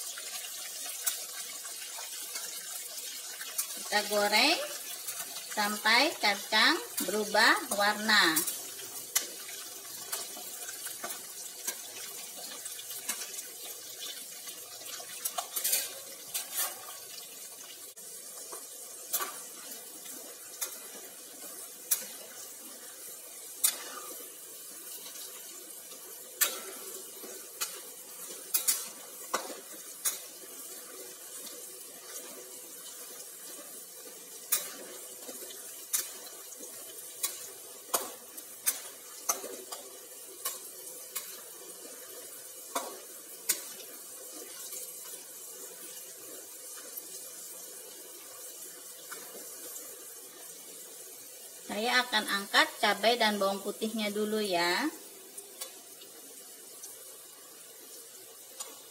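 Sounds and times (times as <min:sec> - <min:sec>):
food sizzling in hot oil: 0:00.0 - 0:58.9
metal spatula scraping wok: 0:15.2 - 0:17.2.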